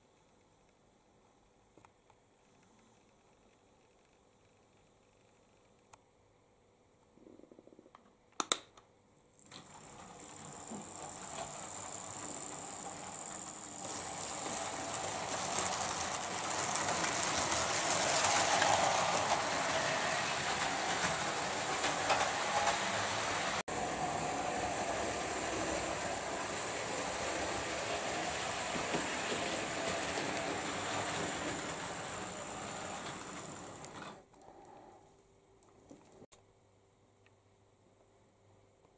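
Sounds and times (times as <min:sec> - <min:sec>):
model train motor whine: 0:09.5 - 0:34.1
wheels clicking over rail joints: 0:09.5 - 0:34.2.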